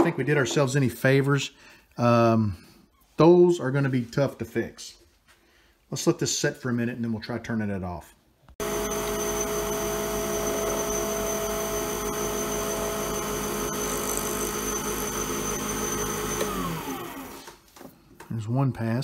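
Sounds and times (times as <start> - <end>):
lathe motor running: 8.6 - 17.5
motor spinning down: 8.6 - 17.5
tool cutting resin: 8.6 - 17.6.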